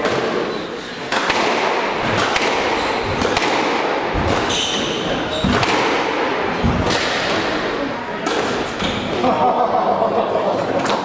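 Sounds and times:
squash ball cracking: 1.0 - 9.0
shoes squeaking on wooden floor: 2.7 - 3.2, 4.2 - 5.7.

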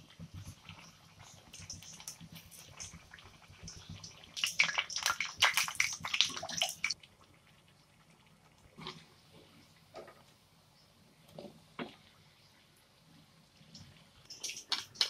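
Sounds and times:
oil crackling and spattering: 1.5 - 7.0, 14.3 - 15.0.

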